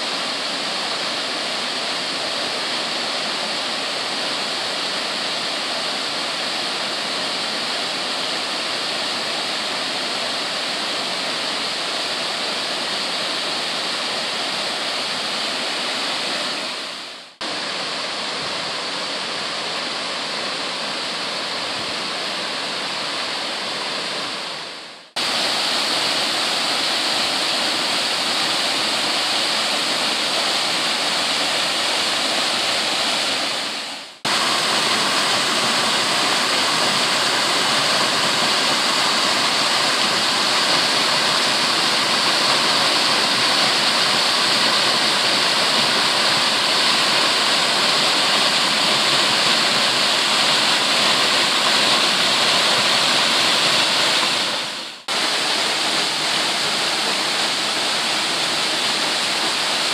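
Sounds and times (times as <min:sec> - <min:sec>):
waterfall pouring into a pool: 0:25.2 - 0:59.9.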